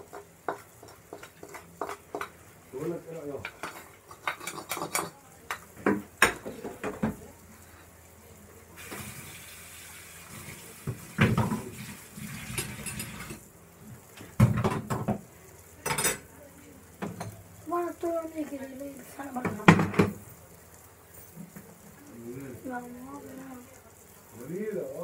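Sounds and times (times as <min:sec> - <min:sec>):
steady hiss: 0:07.2 - 0:14.4, 0:17.6 - 0:25.0
metal cookware clinking: 0:12.4 - 0:13.4, 0:15.8 - 0:16.3.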